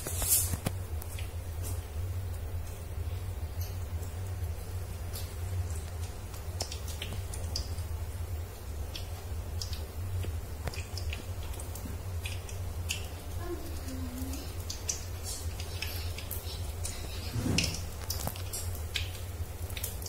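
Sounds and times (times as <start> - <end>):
low steady hum: 0.0 - 20.0
seeds popping in hot oil: 0.0 - 20.0.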